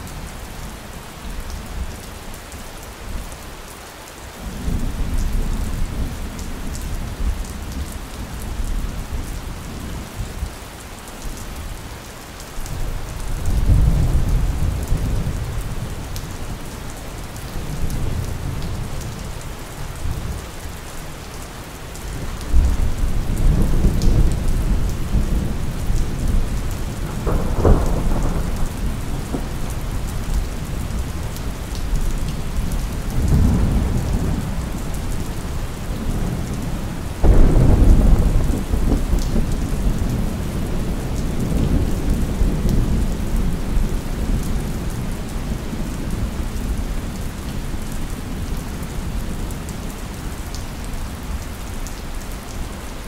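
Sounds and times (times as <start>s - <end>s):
steady rain: 0.0s - 53.0s
rolling thunder: 22.4s - 31.8s, 32.6s - 44.8s
thunder clap: 27.0s - 29.5s, 37.2s - 40.3s.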